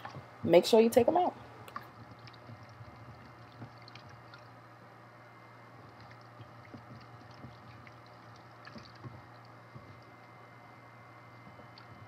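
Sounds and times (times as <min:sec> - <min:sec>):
small water splashes and squelches: 0:01.7 - 0:04.6.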